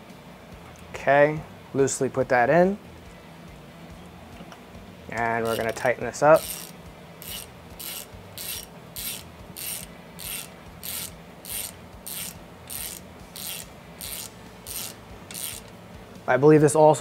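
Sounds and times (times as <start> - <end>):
ratchet wrench clicking: 5.2 - 15.8.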